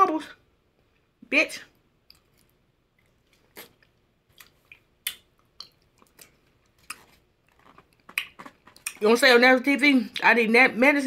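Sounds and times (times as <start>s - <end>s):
person chewing and lip smacking: 2.0s - 9.0s.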